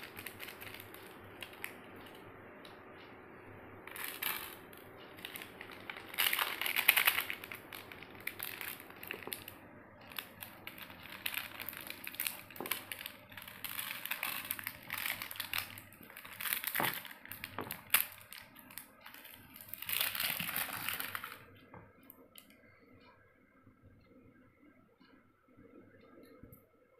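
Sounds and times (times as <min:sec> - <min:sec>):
foil sachets crinkling: 0:00.0 - 0:02.2, 0:03.9 - 0:21.5.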